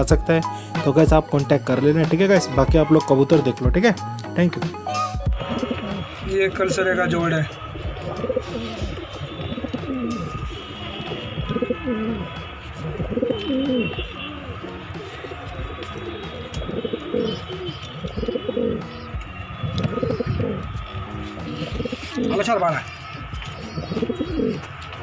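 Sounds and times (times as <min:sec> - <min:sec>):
pigeons cooing: 0:05.0 - 0:25.0.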